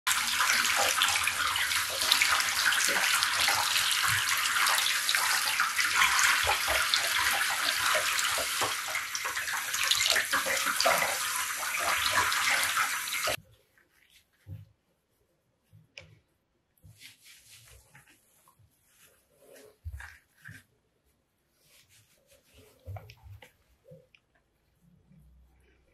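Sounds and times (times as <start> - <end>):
shower head spraying water: 0.1 - 13.4.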